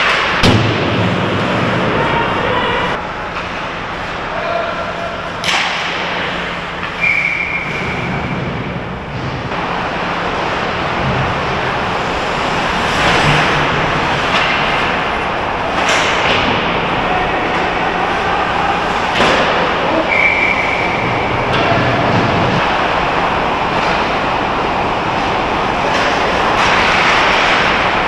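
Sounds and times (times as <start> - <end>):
echoing rink noise: 0.0 - 28.0
sharp crack of puck or stick: 5.4 - 6.9, 25.9 - 27.8.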